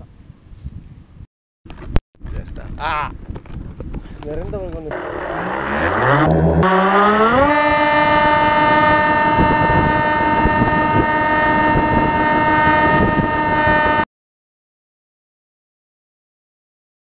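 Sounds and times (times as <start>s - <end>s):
model plane motor whine: 4.9s - 11.1s.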